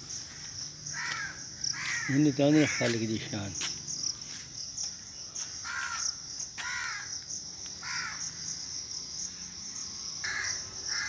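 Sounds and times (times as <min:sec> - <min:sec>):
insect chirring: 0:00.0 - 0:11.0
crow cawing: 0:00.9 - 0:03.0, 0:05.6 - 0:07.2, 0:07.8 - 0:08.3, 0:10.2 - 0:11.0.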